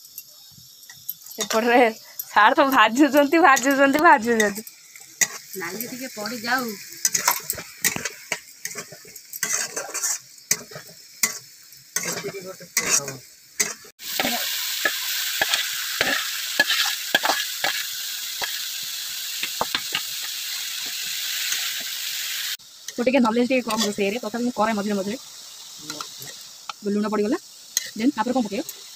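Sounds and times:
vegetables sizzling in oil: 0.0s - 28.9s
steel spatula scraping wok: 0.1s - 28.9s.

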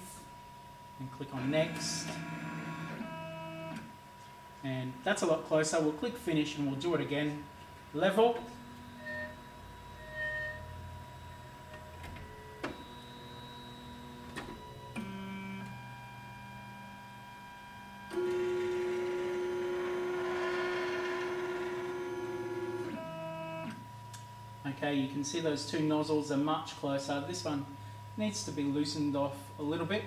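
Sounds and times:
stepper motors whining: 18.0s - 23.8s.

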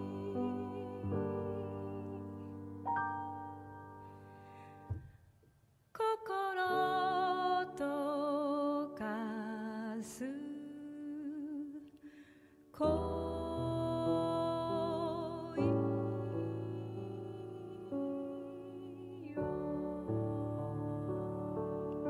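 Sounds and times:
slow gentle background music: 0.0s - 4.5s, 12.8s - 22.0s.

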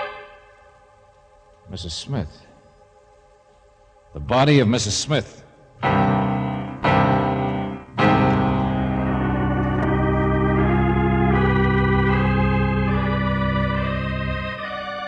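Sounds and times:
dramatic organ chord: 0.0s - 0.8s, 5.8s - 15.0s.

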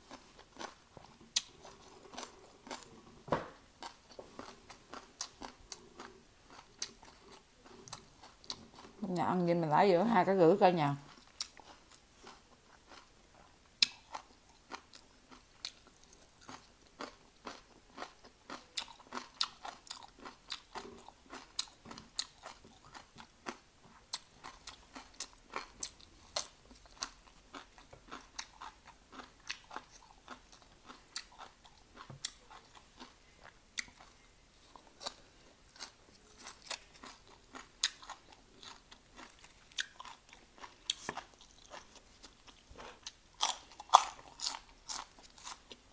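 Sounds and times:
crunching raw vegetables: 11.0s - 45.9s.

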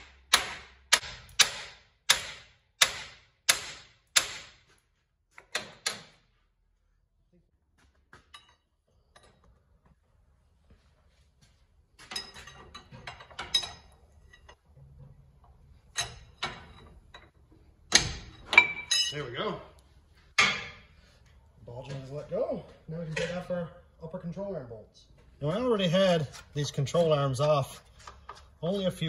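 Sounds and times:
hammer striking steel: 0.0s - 4.6s, 20.4s - 20.9s
hand tool clinking on nut: 12.1s - 14.6s, 17.9s - 19.2s.

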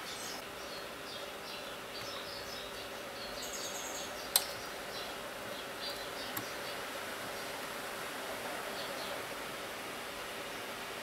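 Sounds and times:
sharp click: 4.3s - 4.6s.

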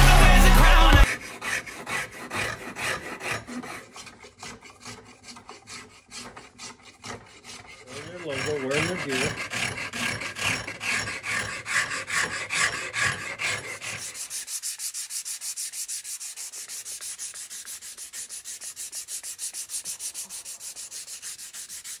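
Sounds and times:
sandpaper rubbing on wood: 0.0s - 22.0s.

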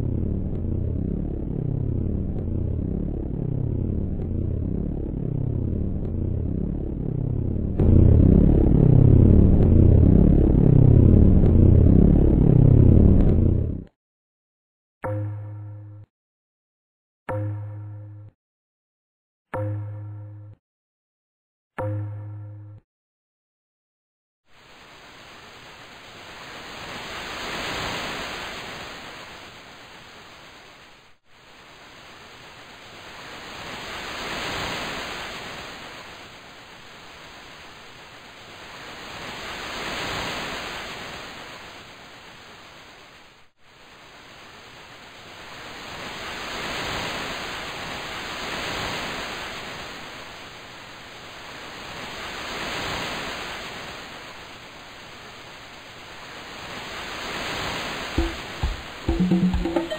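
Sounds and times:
ocean surf hiss: 24.5s - 59.9s.

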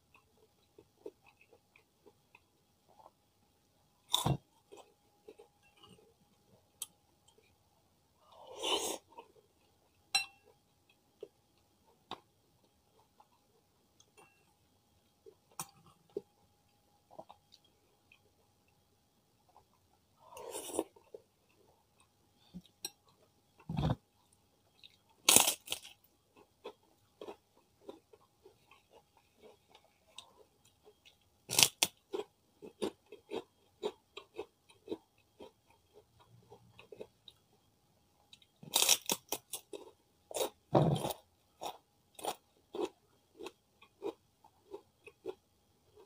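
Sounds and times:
crackly chewing: 19.5s - 37.7s, 38.3s - 46.0s
cracker crunching: 38.7s - 41.2s.

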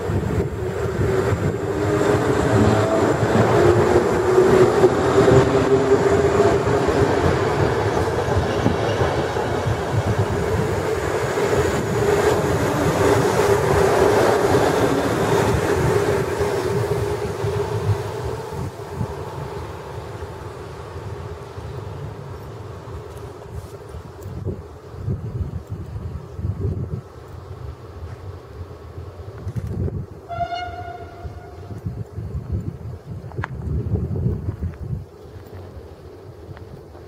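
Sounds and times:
electric train motor hum: 0.0s - 23.2s
train wheels rumbling on rail: 0.0s - 37.0s.

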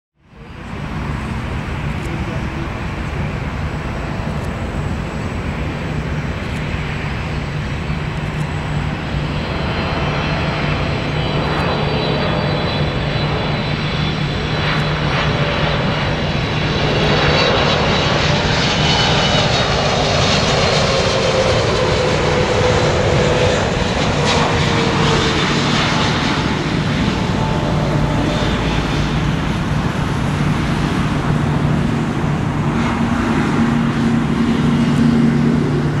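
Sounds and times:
jet engines droning: 0.2s - 36.0s
jet whine falling in pitch: 7.6s - 36.0s.

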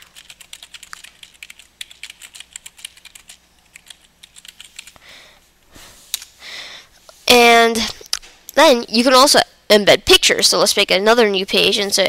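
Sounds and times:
typing on computer keyboard: 0.0s - 5.0s.

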